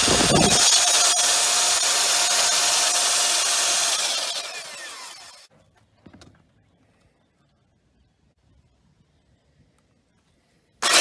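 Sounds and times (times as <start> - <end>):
belt sander grinding: 0.0 - 5.5.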